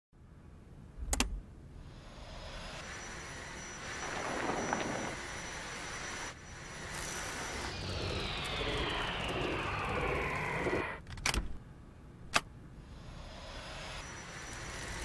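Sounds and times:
switch click: 0:01.1 - 0:01.4.

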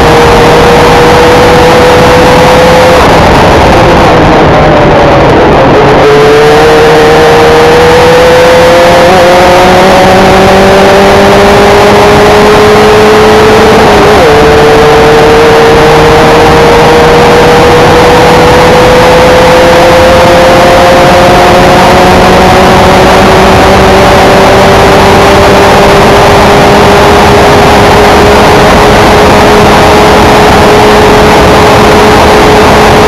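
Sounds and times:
race car engine accelerating: 0:00.0 - 0:33.0.

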